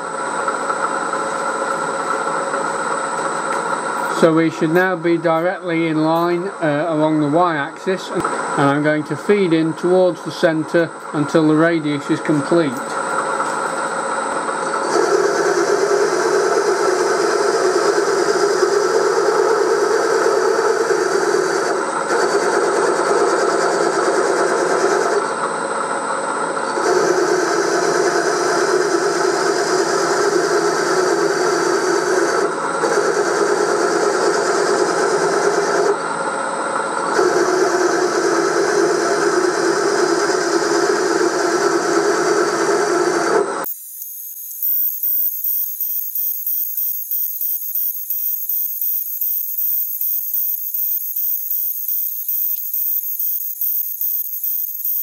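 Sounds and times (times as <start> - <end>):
high whine: 43.7 - 55.0
milling machine cutting metal: 43.7 - 55.0.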